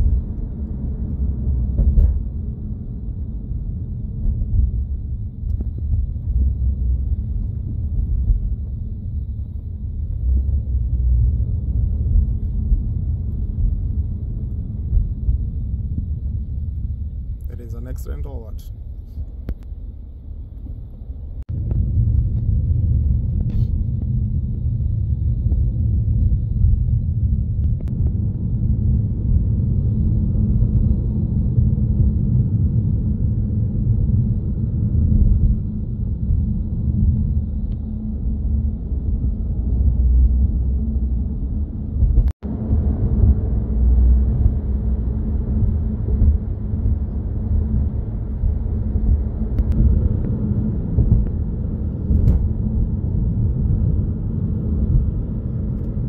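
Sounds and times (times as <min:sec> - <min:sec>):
car driving cabin rumble: 0:00.0 - 0:56.0.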